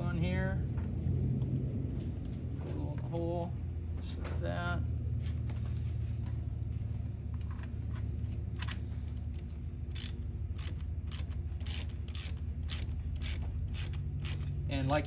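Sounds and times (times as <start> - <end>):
steady low hum: 0.0 - 15.0
ratchet wrench clicking: 9.9 - 15.0.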